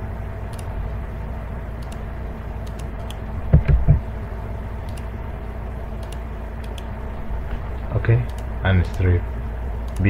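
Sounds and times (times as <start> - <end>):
low hum and hiss: 0.0 - 10.0
short low thumps: 3.4 - 4.2.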